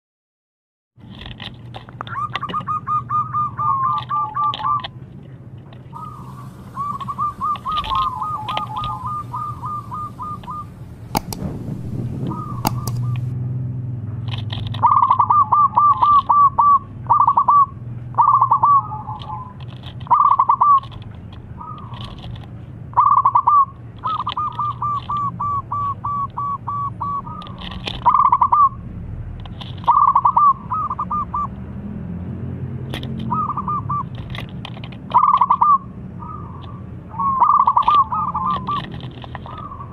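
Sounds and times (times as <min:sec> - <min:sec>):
dove cooing: 0:02.1 - 0:05.0, 0:05.9 - 0:13.3, 0:14.8 - 0:21.0, 0:21.6 - 0:22.3, 0:23.0 - 0:28.8, 0:29.8 - 0:31.5, 0:33.2 - 0:34.4, 0:35.1 - 0:39.9
low hum: 0:05.9 - 0:14.3
sharp clicks: 0:10.4 - 0:13.3.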